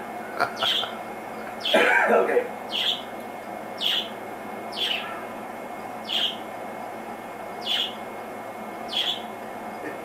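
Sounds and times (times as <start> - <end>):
bird chirping: 0.6 - 1.0, 2.7 - 3.1, 3.8 - 5.3, 6.0 - 6.4, 7.6 - 8.0, 8.9 - 9.3.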